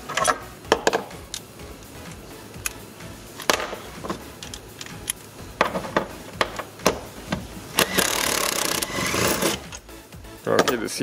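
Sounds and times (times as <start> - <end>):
tools clicking against bolts: 3.4 - 5.2, 7.8 - 9.8.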